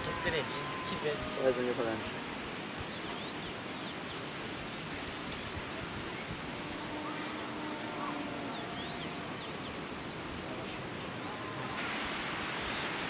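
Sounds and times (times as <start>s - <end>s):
distant low animal call: 0.0s - 2.5s
faint clicks: 2.3s - 4.3s, 7.9s - 10.7s.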